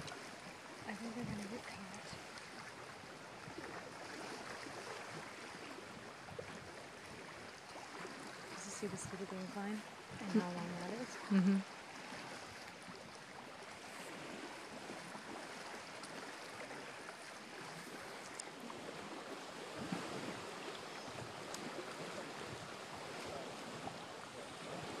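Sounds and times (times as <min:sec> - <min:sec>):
waves lapping against wall and rocks: 0:00.0 - 0:25.0
faint clicks: 0:18.2 - 0:18.5.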